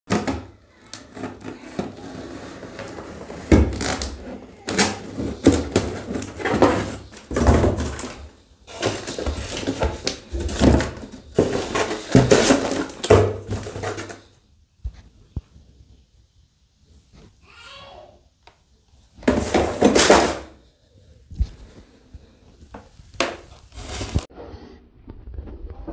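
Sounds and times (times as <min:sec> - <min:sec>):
cardboard rustling and thuds: 0:01.2 - 0:14.3, 0:19.2 - 0:20.6, 0:22.7 - 0:24.3.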